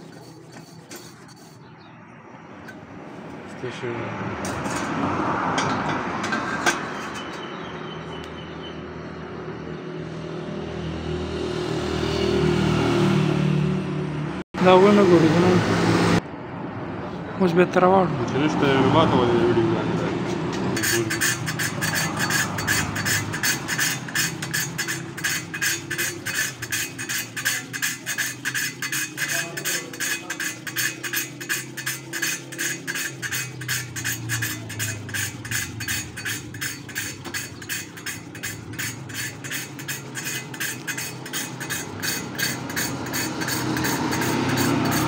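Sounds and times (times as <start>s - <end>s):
gritty metal rasping: 0.0s - 1.8s, 2.5s - 3.6s, 4.4s - 7.6s, 20.3s - 45.0s.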